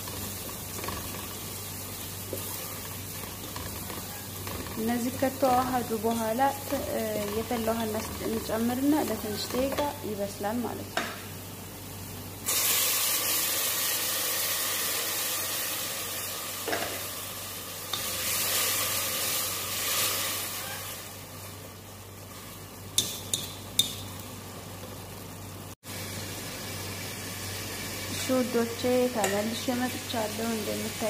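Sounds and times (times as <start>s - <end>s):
loud sizzling hiss: 10.3s - 24.6s.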